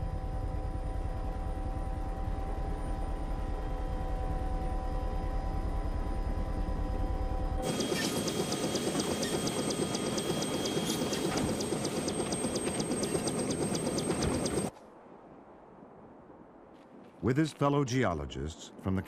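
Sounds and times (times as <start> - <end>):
helicopter rotor chop and whine: 0.0 - 14.7
helicopter rotor throbbing: 0.0 - 14.7.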